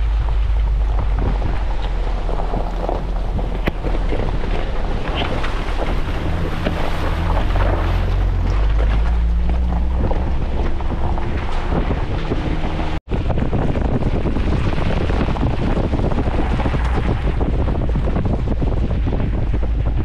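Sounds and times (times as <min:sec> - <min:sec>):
tyres crunching over gravel: 0:00.0 - 0:13.0
vehicle engine rumbling: 0:00.0 - 0:20.0.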